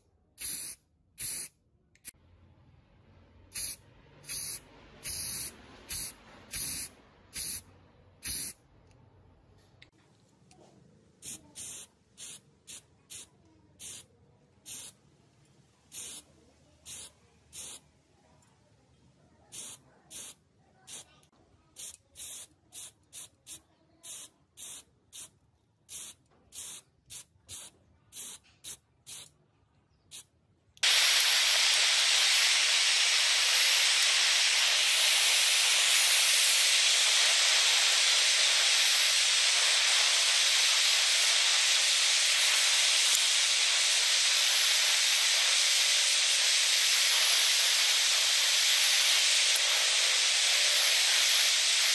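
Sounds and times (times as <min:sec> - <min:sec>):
spray-paint bursts hissing: 0:00.4 - 0:01.5, 0:03.5 - 0:07.6, 0:08.2 - 0:08.6, 0:11.2 - 0:14.0, 0:14.7 - 0:15.0, 0:15.9 - 0:16.2, 0:16.9 - 0:17.8, 0:19.5 - 0:21.1, 0:21.8 - 0:25.3, 0:25.9 - 0:29.3, 0:30.8 - 0:51.9
blowtorch flame hissing: 0:03.6 - 0:07.6, 0:30.8 - 0:51.9.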